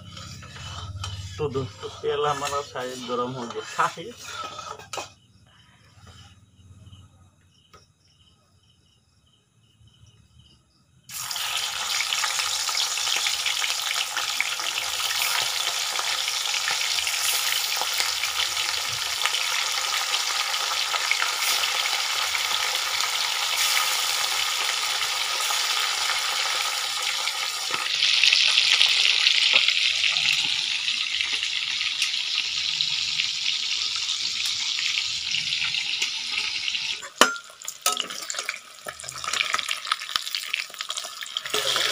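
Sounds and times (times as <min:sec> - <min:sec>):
fish sizzling in hot oil: 0:11.1 - 0:41.9.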